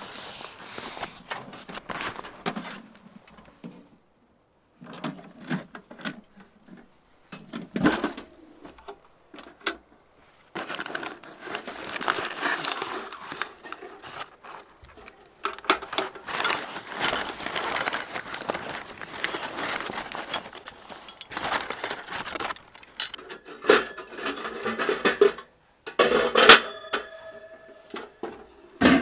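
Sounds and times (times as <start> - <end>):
paper crinkling: 0.0 - 2.8, 10.4 - 23.2
paper bag handled: 0.0 - 2.9, 10.2 - 23.2
metal clicks and knocks: 21.0 - 27.1.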